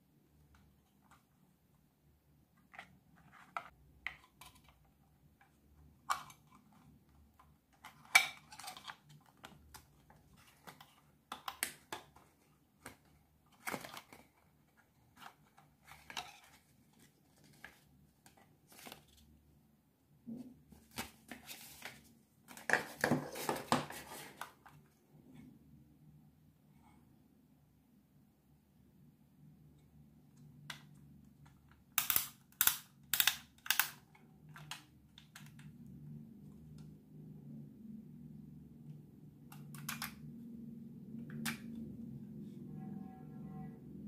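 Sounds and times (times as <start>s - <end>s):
plastic camera handling clicks: 32.0s - 35.6s, 39.5s - 40.2s.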